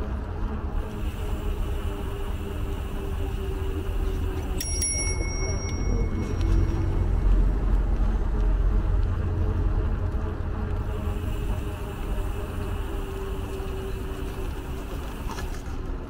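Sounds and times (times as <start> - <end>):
steady low rumble: 0.0 - 16.0
bicycle bell ringing: 4.5 - 7.4.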